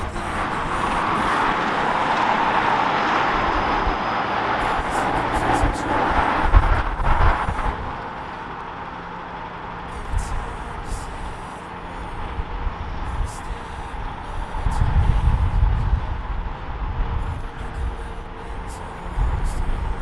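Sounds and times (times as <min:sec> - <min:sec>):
train wheels rushing on rail: 0:00.0 - 0:12.5.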